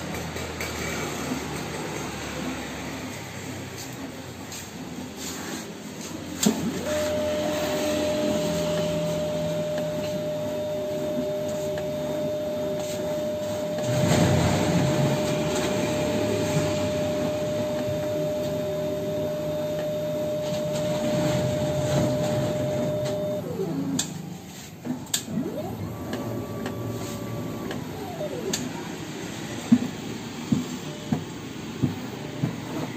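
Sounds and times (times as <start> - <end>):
pump and mechanism noise: 0.0 - 32.9
motor whine: 6.4 - 24.1, 25.3 - 28.9.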